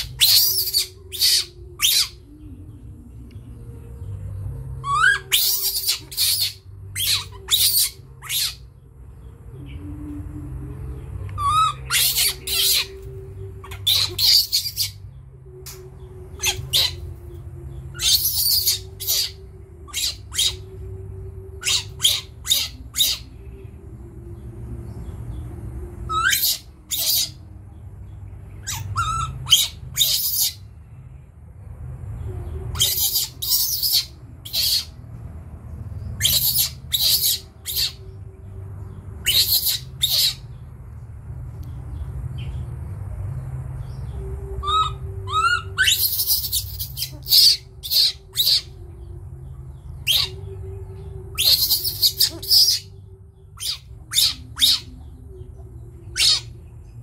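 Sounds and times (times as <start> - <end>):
baby monkey screeching: 0.0 - 2.4, 4.8 - 8.7, 11.4 - 15.1, 16.4 - 17.2, 17.8 - 20.9, 21.5 - 23.3, 26.1 - 27.5, 28.6 - 30.7, 32.7 - 35.0, 36.1 - 38.2, 39.2 - 40.6, 44.6 - 48.8, 49.9 - 50.5, 51.3 - 55.2, 56.1 - 56.6.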